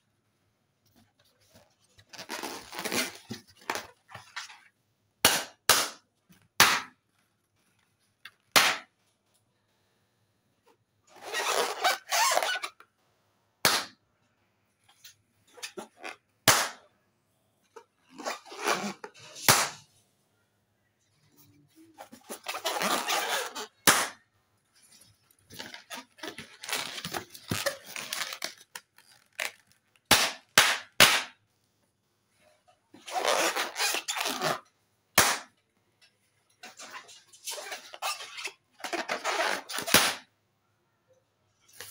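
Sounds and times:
balloon rubber rubbing: 11.1 - 12.8, 22.0 - 24.2
balloon popping: 13.6 - 14.0, 16.4 - 16.8, 22.3 - 24.2, 35.2 - 35.5, 38.8 - 40.3.

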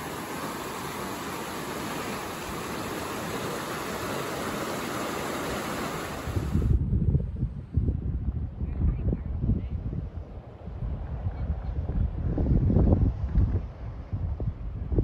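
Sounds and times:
surf rushing over rocks: 0.0 - 6.7
wind buffeting microphone: 0.0 - 15.0.

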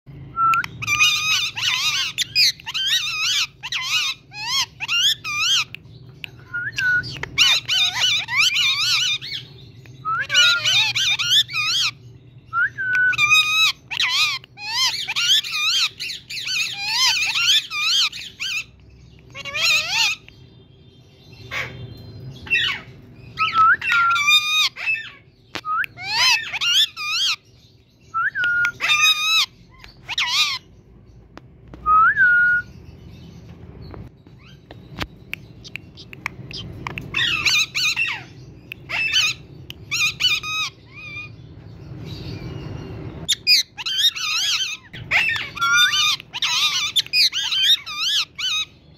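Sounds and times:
parrot talking: 0.8 - 5.7, 10.1 - 12.0, 13.2 - 18.7, 19.4 - 20.3, 43.3 - 48.7
parrot whistling: 6.4 - 9.4, 10.0 - 18.7, 23.4 - 25.0, 31.8 - 32.7, 43.3 - 48.7.

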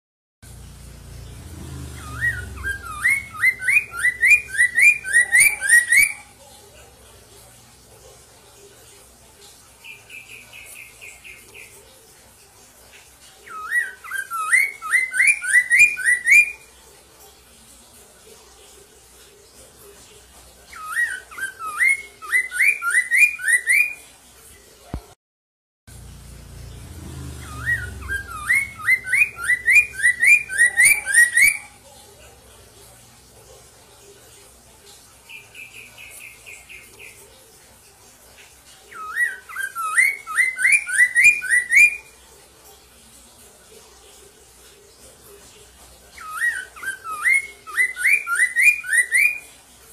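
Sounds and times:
bird chirping: 0.5 - 6.6, 9.8 - 12.0, 13.0 - 16.7, 20.6 - 24.0, 26.0 - 32.0, 35.2 - 37.5, 38.8 - 42.2, 46.1 - 49.5
bird whistling rising notes: 1.8 - 6.2, 27.3 - 31.7.

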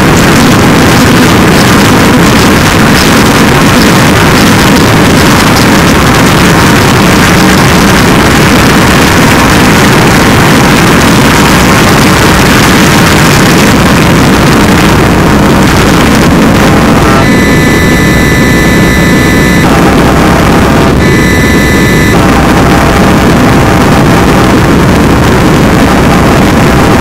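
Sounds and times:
distorted digital noise: 0.0 - 27.0.

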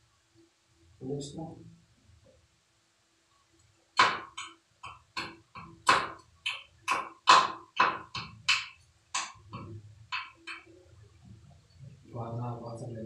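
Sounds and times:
hammer tapping on metal: 4.0 - 10.7.

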